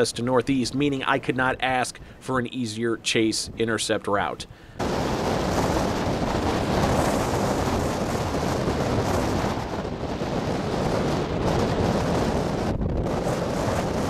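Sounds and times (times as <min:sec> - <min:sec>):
strong wind on microphone: 0:04.8 - 0:14.0.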